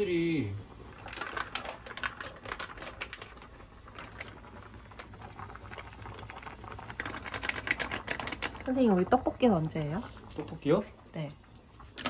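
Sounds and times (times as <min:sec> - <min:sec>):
plastic pouch crinkling: 0:01.0 - 0:04.4.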